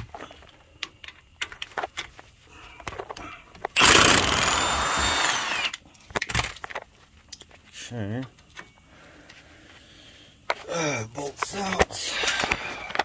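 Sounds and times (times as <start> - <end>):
impact wrench whine: 3.8 - 5.8.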